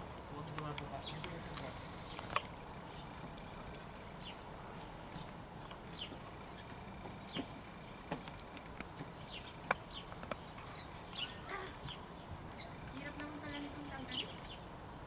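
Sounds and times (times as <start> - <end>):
small birds chirping: 0.0 - 15.0
sharp clicks: 0.5 - 2.6.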